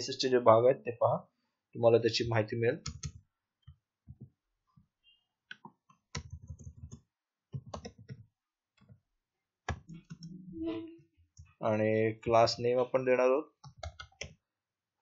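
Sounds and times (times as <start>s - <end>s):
typing on computer keyboard: 2.8s - 3.2s, 6.1s - 8.3s, 13.6s - 14.4s.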